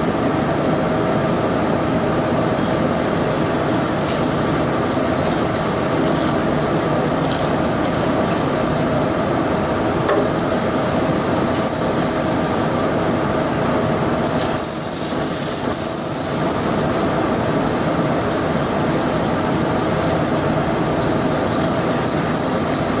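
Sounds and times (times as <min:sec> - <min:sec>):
loud machine hum: 0:00.0 - 0:23.0.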